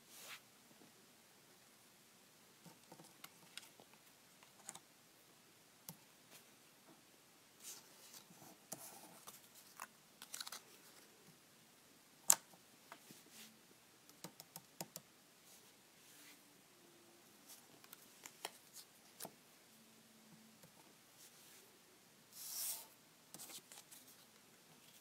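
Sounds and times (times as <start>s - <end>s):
paper rustling: 9.2s - 11.0s.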